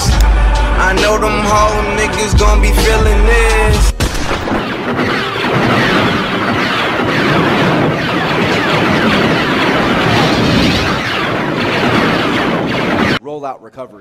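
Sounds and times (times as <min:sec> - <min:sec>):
fireworks crackling and hissing: 0:04.7 - 0:13.0.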